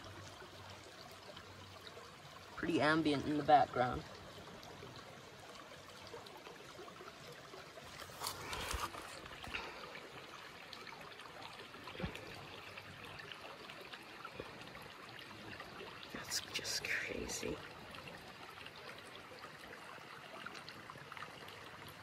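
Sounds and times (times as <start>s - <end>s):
creek trickling over stones: 0.0s - 22.0s.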